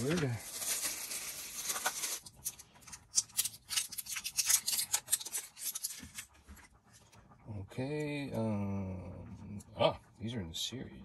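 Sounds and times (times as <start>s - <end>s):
plastic clicks and scrapes: 0.0s - 6.7s.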